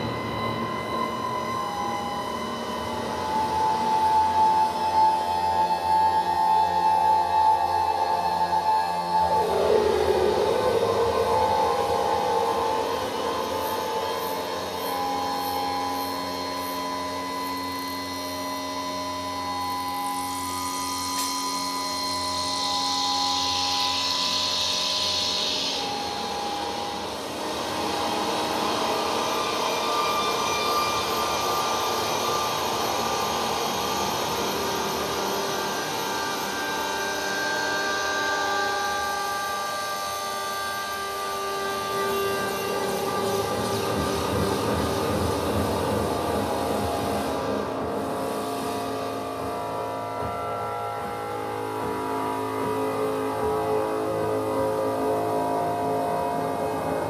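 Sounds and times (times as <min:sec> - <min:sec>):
electroacoustic drone: 0:00.0 - 0:57.0
high hissing band: 0:19.3 - 0:39.8.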